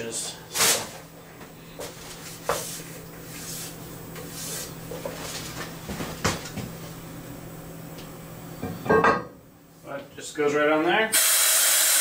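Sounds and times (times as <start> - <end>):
vacuum pump humming: 11.1 - 12.0.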